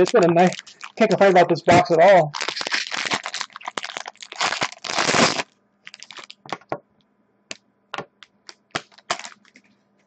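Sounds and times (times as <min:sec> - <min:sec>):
foil wrapper crinkling and tearing: 0:00.0 - 0:06.6, 0:08.4 - 0:09.7.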